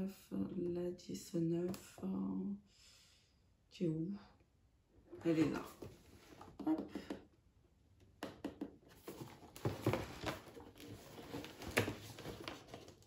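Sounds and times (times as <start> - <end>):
cardboard box scratches and rustles: 9.0 - 13.0.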